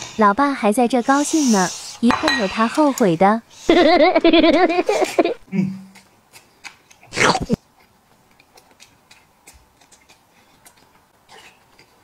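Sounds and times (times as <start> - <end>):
quiet chewing: 5.9 - 12.0.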